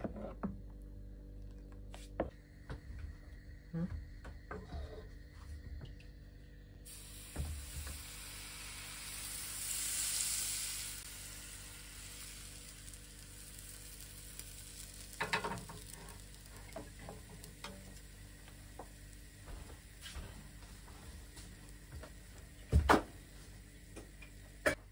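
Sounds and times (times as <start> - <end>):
batter sizzling in a pan: 6.9 - 24.8.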